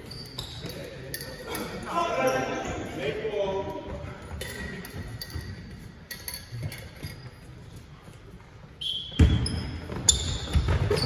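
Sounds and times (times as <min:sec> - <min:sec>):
sneaker squeaks on court: 0:00.0 - 0:01.3, 0:08.9 - 0:11.0.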